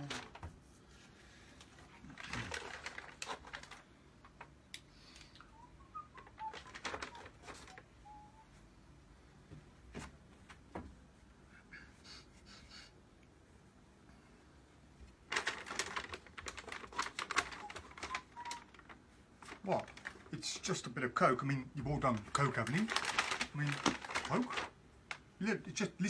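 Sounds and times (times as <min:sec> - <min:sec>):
paper bag rustling: 0:00.0 - 0:00.8, 0:01.7 - 0:04.6, 0:05.5 - 0:08.6, 0:15.2 - 0:25.3.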